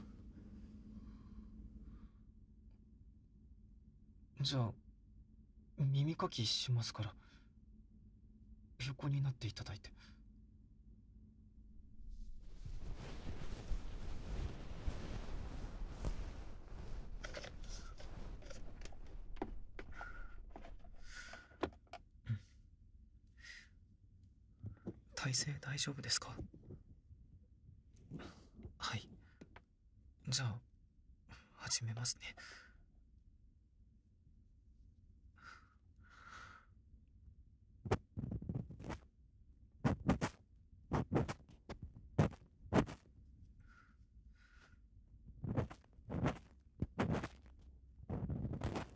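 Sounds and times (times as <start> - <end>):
cloth rustling: 11.8 - 21.1.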